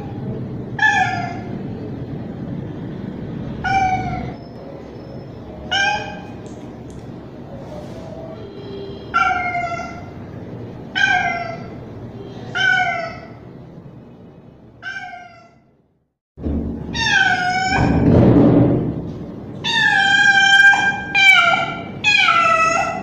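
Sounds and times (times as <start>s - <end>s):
cat meowing loudly: 16.9s - 18.0s, 19.6s - 23.0s.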